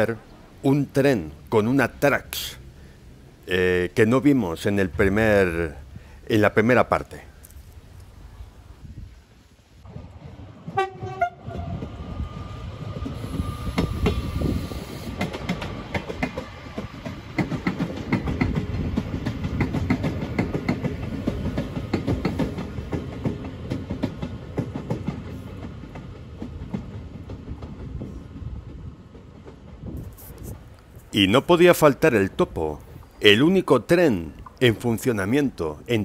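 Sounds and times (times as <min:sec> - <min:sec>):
train rumble: 0:00.0 - 0:35.9
train horn: 0:10.7 - 0:11.8.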